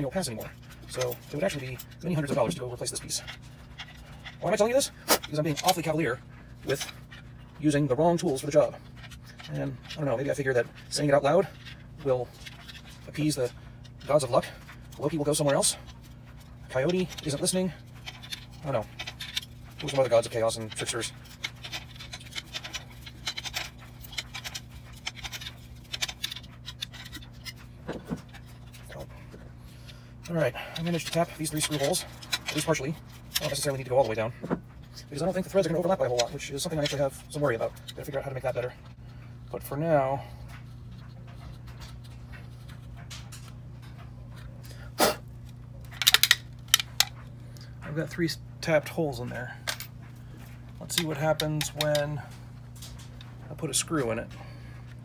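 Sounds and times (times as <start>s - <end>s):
sharp clicks and rattles: 0.0s - 29.1s, 30.2s - 38.4s, 45.5s - 48.2s, 49.6s - 54.1s
steady low hum: 0.0s - 55.0s
plastic part handling noise: 8.4s - 38.1s, 45.4s - 47.7s, 49.7s - 53.4s.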